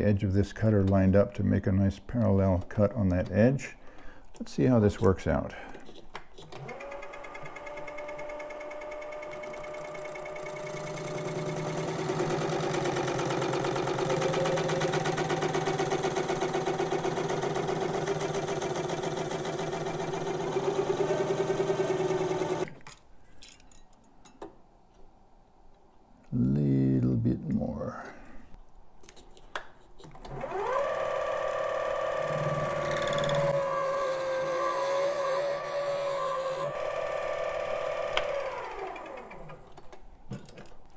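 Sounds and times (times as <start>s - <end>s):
lathe motor whine: 6.5s - 22.7s, 30.3s - 39.5s.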